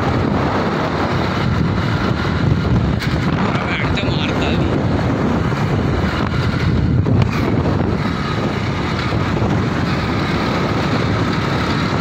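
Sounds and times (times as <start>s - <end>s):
motorbike engine running: 0.0s - 12.0s
wind rushing over microphone: 0.0s - 12.0s.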